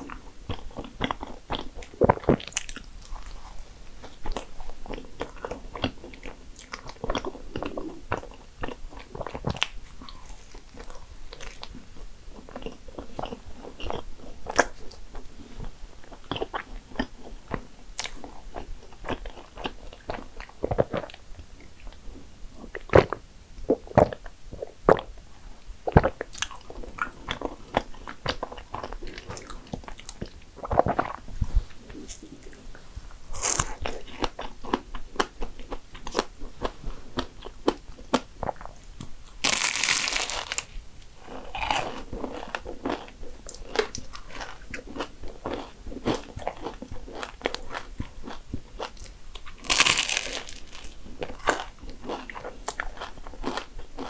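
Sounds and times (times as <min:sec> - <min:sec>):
chewing: 0:00.0 - 0:25.2, 0:25.8 - 0:54.0
crunching bites into pastry: 0:39.4 - 0:40.7, 0:43.6 - 0:54.0.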